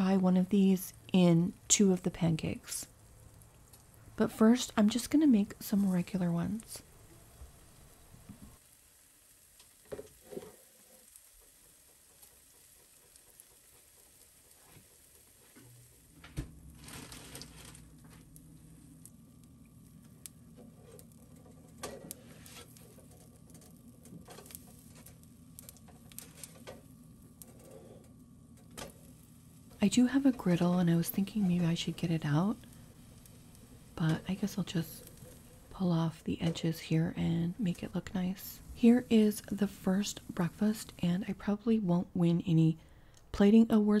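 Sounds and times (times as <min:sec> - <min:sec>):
low steady hum: 0:00.0 - 0:44.0
pancakes sizzling in oil: 0:02.6 - 0:36.1.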